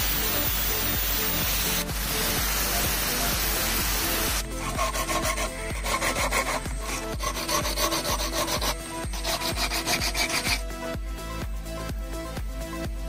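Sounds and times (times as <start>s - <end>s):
sandpaper rasping on shell: 0.6s - 10.8s.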